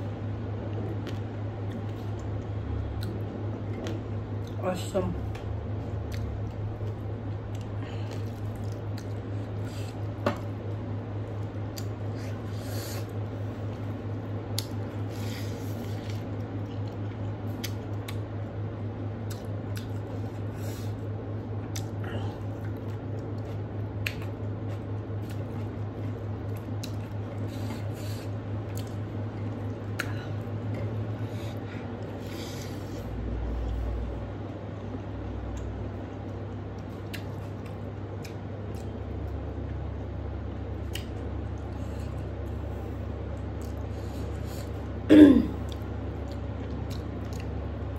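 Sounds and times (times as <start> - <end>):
steady low hum: 0.0 - 47.9
chewing: 6.0 - 10.5, 19.2 - 20.5, 21.6 - 32.8, 45.6 - 47.6.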